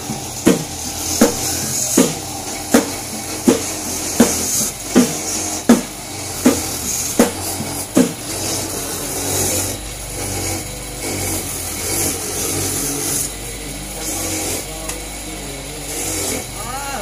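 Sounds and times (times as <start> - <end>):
coconut grater rasping: 0.0 - 17.0
sharp knocks: 0.4 - 8.2.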